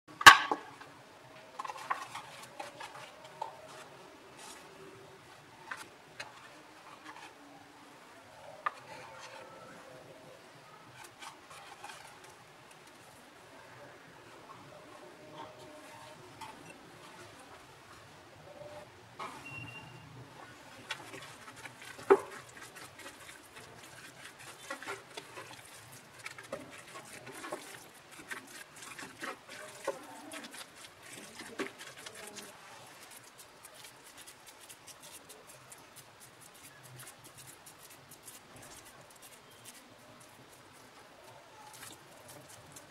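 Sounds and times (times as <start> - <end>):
spatula scraping a bowl: 1.6 - 4.7, 8.7 - 9.8, 10.9 - 12.4, 20.8 - 40.3
wet squelches of mixing meat: 20.5 - 42.9.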